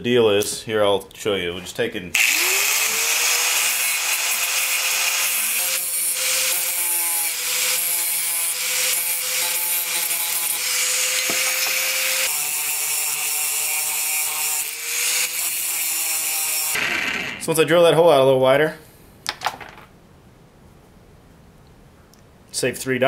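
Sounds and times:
angle grinder whining: 2.2 - 17.5.

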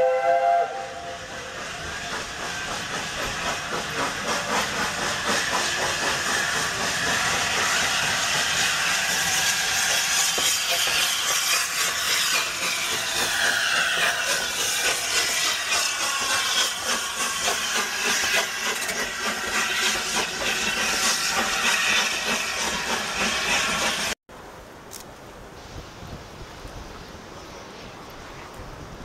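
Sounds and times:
steam locomotive hissing: 0.0 - 24.2
wind noise: 25.4 - 29.0.

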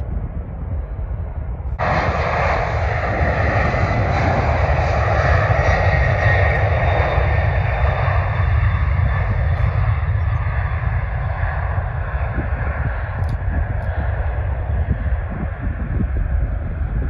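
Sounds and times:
jet engines at takeoff thrust: 0.0 - 17.0.

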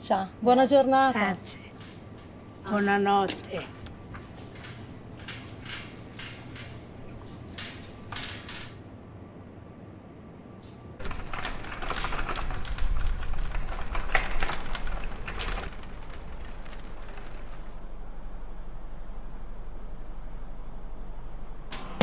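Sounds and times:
shopping trolley rattling over asphalt: 2.6 - 8.7, 11.0 - 17.8.

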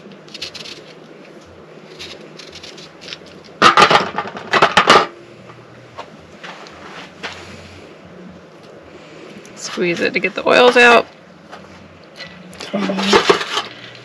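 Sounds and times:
peeler scraping orange rind: 0.0 - 1.1, 1.8 - 3.5
clattering handling noise: 12.6 - 14.0.

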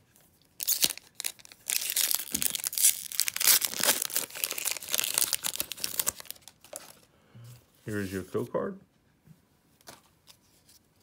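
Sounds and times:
foil wrapper tearing and crinkling: 0.6 - 6.9.

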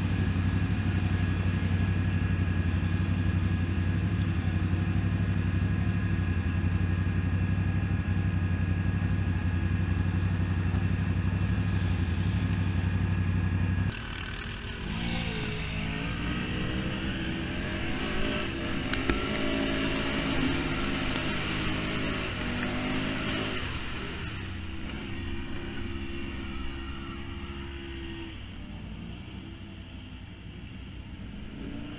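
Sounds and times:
quad engine running: 0.0 - 31.9
engines revving: 13.8 - 31.9.

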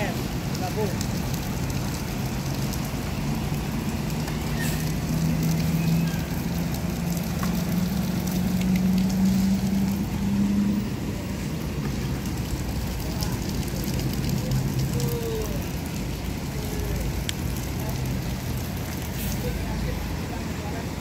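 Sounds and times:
tyre hiss on wet road: 0.0 - 21.0
bus diesel engine pulling away: 4.4 - 6.6.

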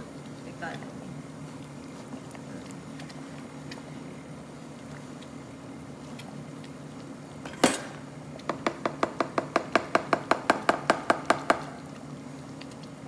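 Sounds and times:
spatula tapping on cooking pot: 8.5 - 11.8.

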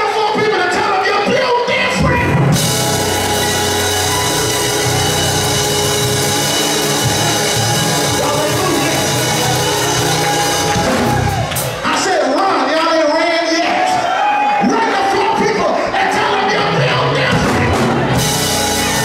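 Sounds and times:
keyboard chords: 1.8 - 12.1, 16.4 - 19.0
drums: 1.9 - 12.1, 16.7 - 19.0
bass guitar: 2.0 - 11.8, 16.6 - 19.0.

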